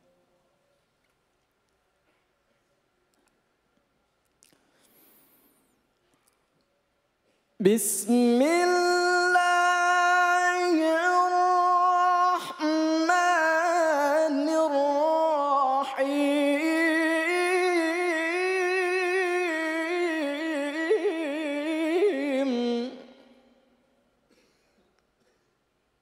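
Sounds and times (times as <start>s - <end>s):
man reciting melodically: 7.6s - 23.6s.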